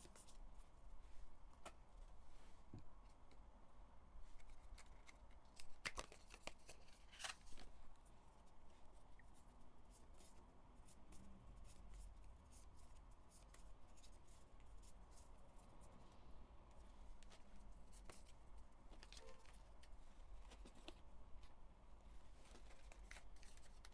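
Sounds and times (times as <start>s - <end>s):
cards sliding and flicking: 4.4s - 7.7s.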